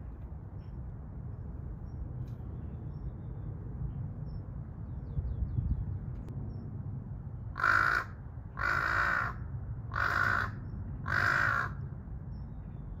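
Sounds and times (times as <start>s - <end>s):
crow cawing: 7.6s - 11.8s.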